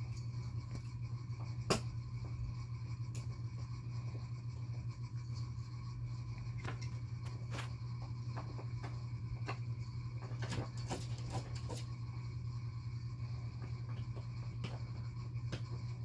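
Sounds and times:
steady low hum: 0:00.0 - 0:16.0
kitten pawing clicks and rustles: 0:10.2 - 0:11.9.

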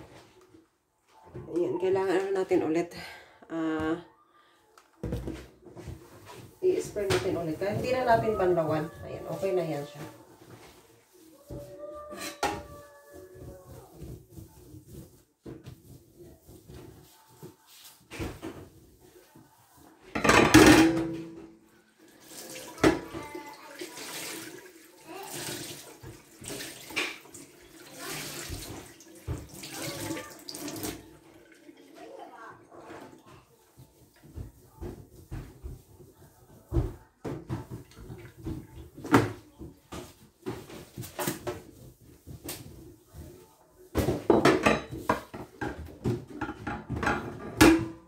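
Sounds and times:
cloth rubbing on metal: 0:06.4 - 0:18.1
tap water running: 0:21.9 - 0:33.3.

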